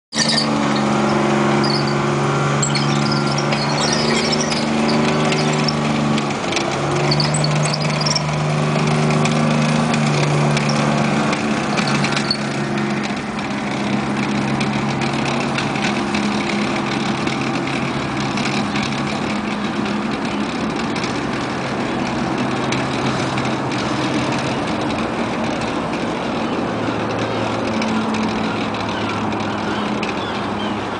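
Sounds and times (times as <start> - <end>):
armoured vehicle engine running: 0.0 - 30.9
high-pitched squeaks: 0.1 - 6.2, 6.8 - 8.4, 9.2 - 12.7.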